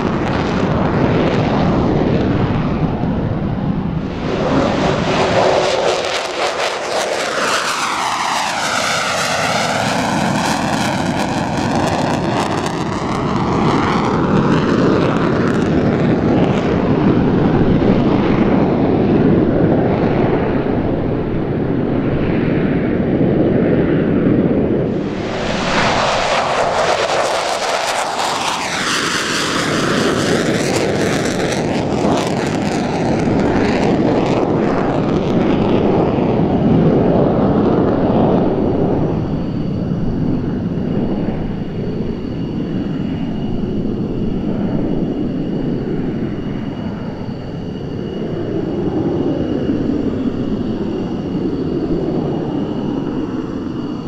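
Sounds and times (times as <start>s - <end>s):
jet engine rumble: 0.0s - 54.0s
faint high whine: 24.8s - 54.0s.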